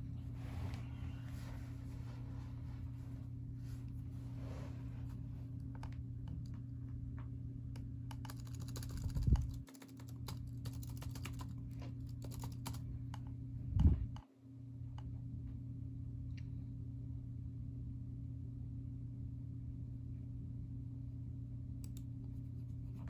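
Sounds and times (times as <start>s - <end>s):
steady low hum: 0.0s - 23.0s
dull low thumps: 13.6s - 14.2s.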